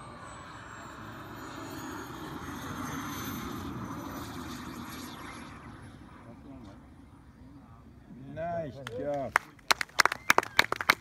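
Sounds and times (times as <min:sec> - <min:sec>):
model jet turbine whine: 0:00.0 - 0:08.7.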